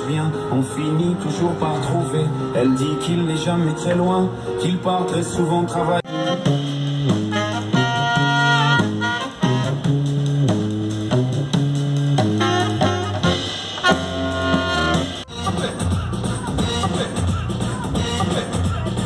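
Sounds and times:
tuba bass line: 0.0 - 19.0
trumpet: 6.0 - 11.4, 12.2 - 15.7
saxophone: 6.0 - 19.0.

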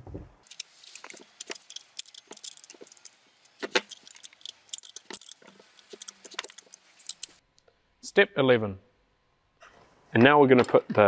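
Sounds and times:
spanner clinking on metal: 0.4 - 7.4.

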